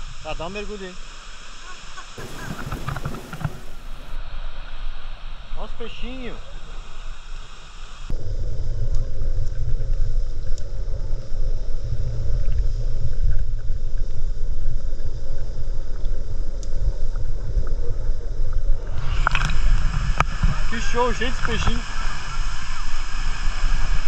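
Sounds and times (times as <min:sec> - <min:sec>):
underwater rumble of moving water: 0:02.2 - 0:24.0
faint ticks: 0:08.8 - 0:10.7, 0:15.2 - 0:17.8.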